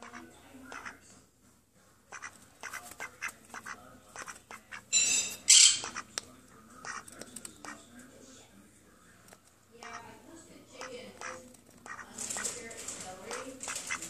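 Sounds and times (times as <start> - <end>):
duck bill pecking clicks: 5.9 - 7.8, 11.2 - 14.0.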